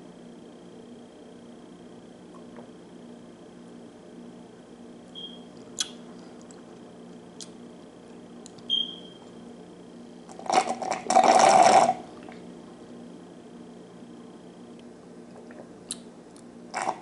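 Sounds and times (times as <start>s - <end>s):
slurping through a straw: 10.3s - 12.4s, 16.7s - 17.0s.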